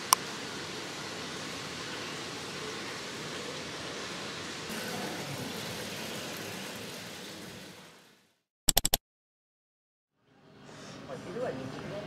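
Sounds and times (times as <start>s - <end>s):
sharp electronic pops: 8.7s - 9.0s.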